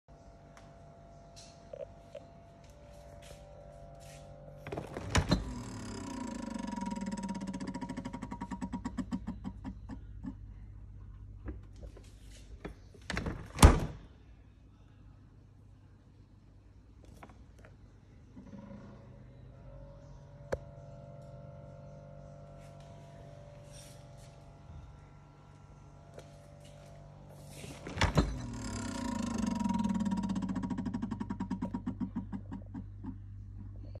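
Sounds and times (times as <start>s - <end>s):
low hum: 0.1s - 34.0s
refrigerator door opening: 4.6s - 8.8s, 12.6s - 14.0s, 27.6s - 30.0s
refrigerator door opening thunk: 4.7s - 6.0s, 13.0s - 14.0s, 27.8s - 29.0s.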